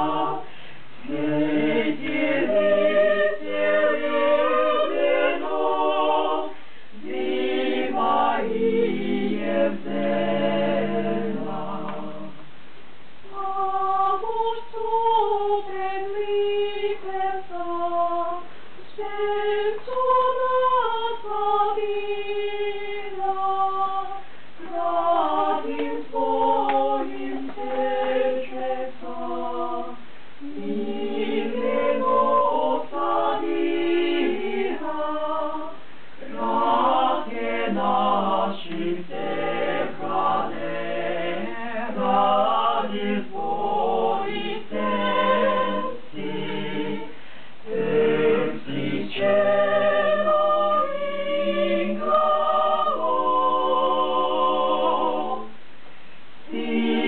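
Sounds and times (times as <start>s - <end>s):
mixed group singing a cappella: 0.0s - 12.4s, 13.2s - 55.6s, 56.4s - 57.0s.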